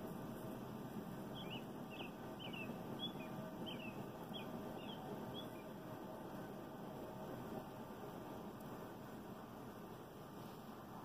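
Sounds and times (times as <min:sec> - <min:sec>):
songbird chirping: 0:00.0 - 0:08.8
low background rumble: 0:00.0 - 0:11.0.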